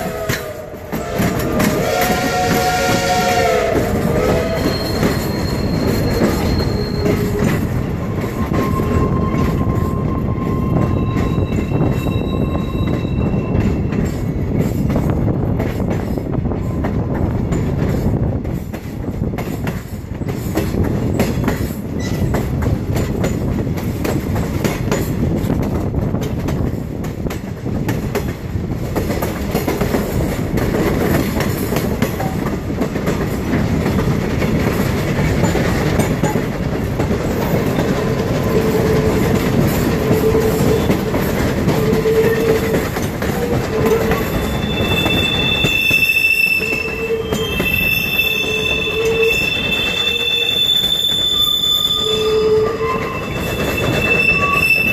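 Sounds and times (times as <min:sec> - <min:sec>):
steam locomotive whistle: 0:00.0 - 0:13.8, 0:38.4 - 0:54.9
train wheels clattering on rails: 0:00.0 - 0:54.9
high wheel squeals: 0:04.0 - 0:14.0, 0:38.4 - 0:54.9.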